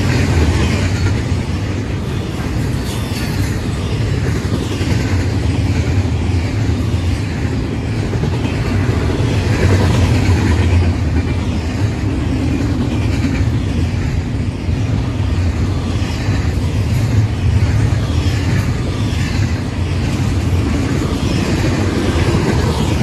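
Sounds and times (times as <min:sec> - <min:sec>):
train rolling past on rails: 0:00.0 - 0:23.0.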